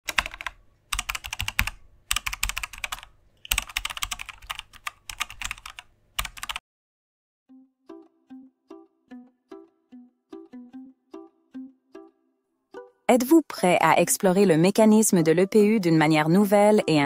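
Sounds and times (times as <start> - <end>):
computer keyboard typing: 0.1 - 6.6
music with plucked notes: 7.5 - 13.1.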